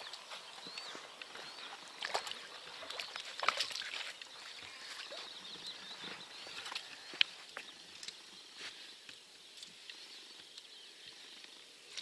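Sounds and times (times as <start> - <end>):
fish splashing in shallow water: 0.0 - 8.2.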